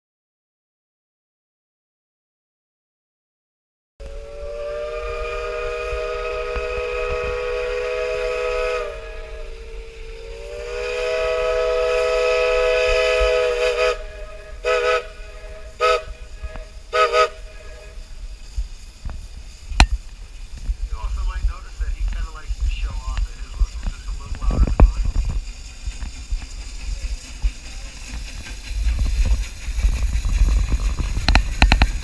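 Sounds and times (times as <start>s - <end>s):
steam locomotive whistle: 4.0s - 18.1s.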